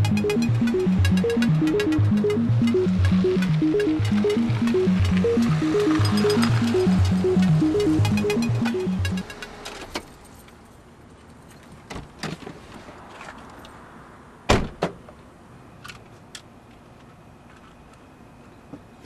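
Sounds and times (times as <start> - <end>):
car door opening and shutting: 14.5 - 15.0.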